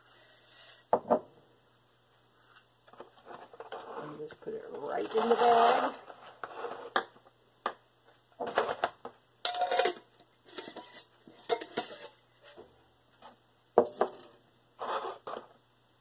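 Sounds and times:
plastic measuring cups clattering: 0:08.4 - 0:12.6.

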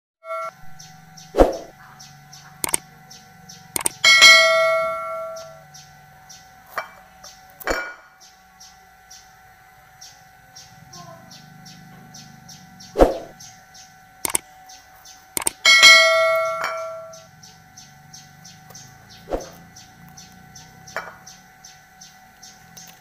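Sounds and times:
faint high chirping: 0:00.3 - 0:04.1, 0:04.8 - 0:23.0
ringing glass clink: 0:15.6 - 0:17.1.

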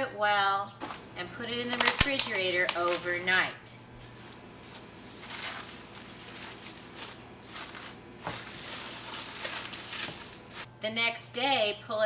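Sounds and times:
plastic wrap crinkling: 0:01.6 - 0:03.4, 0:04.1 - 0:10.7.

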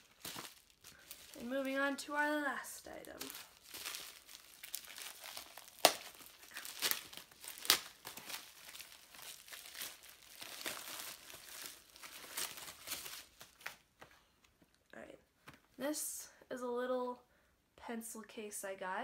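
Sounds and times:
plastic packaging crinkling: 0:00.0 - 0:13.9.

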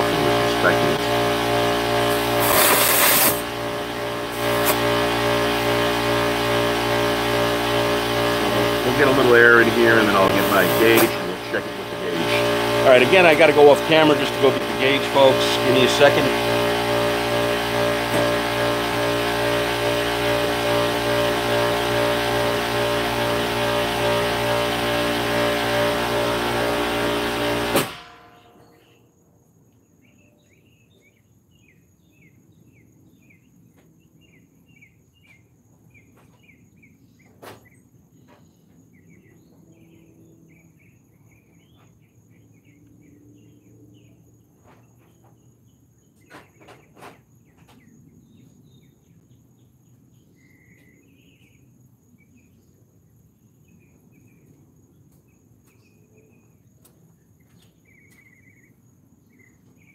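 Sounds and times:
air compressor motor running: 0:00.0 - 0:29.0
high insect buzz: 0:00.0 - 0:29.0
birds chirping: 0:08.0 - 0:16.7.

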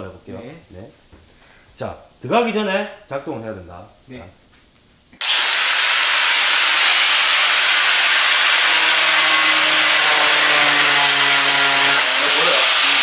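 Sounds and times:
angle grinder sanding wood: 0:05.2 - 0:13.0.

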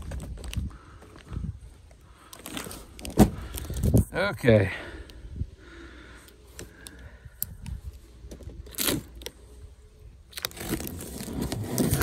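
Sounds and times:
cardboard clicks and rustles: 0:10.3 - 0:12.0
cardboard scrape: 0:10.5 - 0:12.0.

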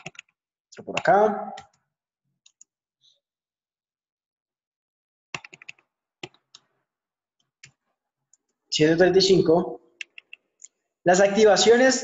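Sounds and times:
keyboard and mouse clicks: 0:00.0 - 0:01.8, 0:02.4 - 0:02.8, 0:05.3 - 0:06.8, 0:07.4 - 0:08.6, 0:10.0 - 0:10.8.

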